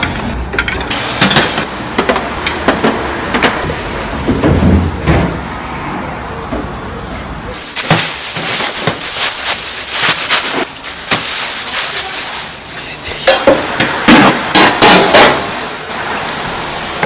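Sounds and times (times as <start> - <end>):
utensils and dishes clattering: 0.0 - 3.7, 7.6 - 15.6.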